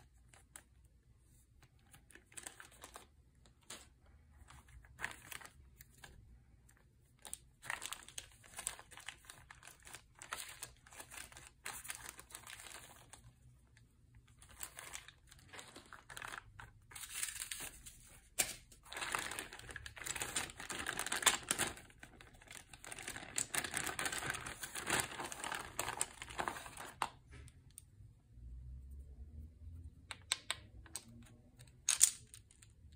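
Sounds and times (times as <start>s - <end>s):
plastic bags crinkling: 1.8s - 6.2s, 7.1s - 27.2s
game pieces clicking: 31.8s - 32.4s.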